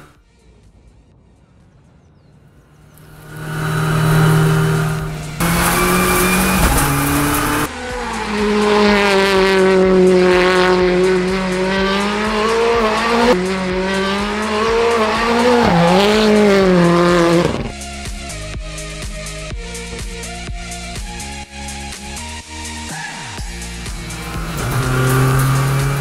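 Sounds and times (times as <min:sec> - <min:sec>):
rally car engine revving: 0:02.6 - 0:17.9, 0:22.8 - 0:26.0.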